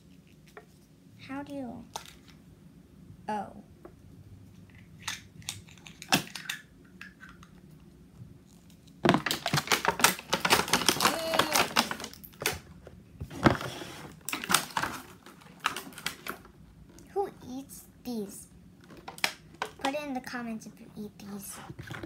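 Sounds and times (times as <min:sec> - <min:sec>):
plastic packaging crinkling: 0:09.0 - 0:16.5.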